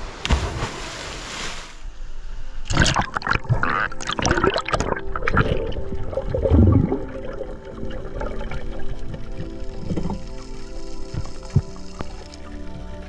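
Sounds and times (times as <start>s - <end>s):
water splash: 0.0s - 1.8s
low surge of water: 0.0s - 2.0s, 2.6s - 13.0s
underwater bubbling and gurgling: 2.7s - 13.0s
underwater crackles: 2.7s - 13.0s.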